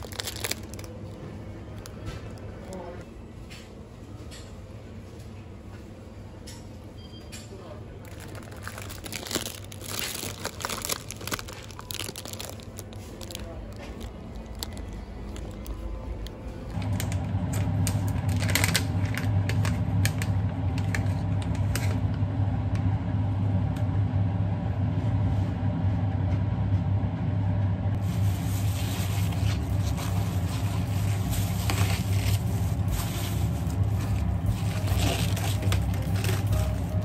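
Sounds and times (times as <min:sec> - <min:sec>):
plastic bag crinkling: 0:00.0 - 0:02.9, 0:08.0 - 0:16.8, 0:28.2 - 0:37.0
low hum: 0:08.0 - 0:37.0.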